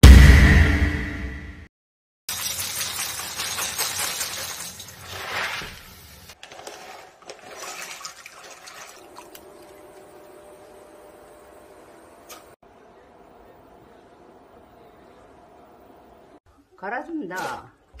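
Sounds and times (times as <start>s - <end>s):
dried beans pouring into glass bowl: 2.3s - 5.8s.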